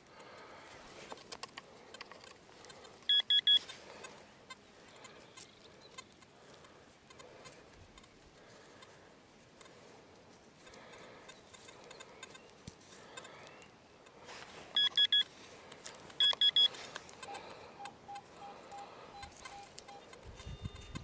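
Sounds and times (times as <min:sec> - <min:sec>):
metal detector beeps: 0:03.1 - 0:03.7, 0:14.7 - 0:15.3, 0:16.2 - 0:21.0.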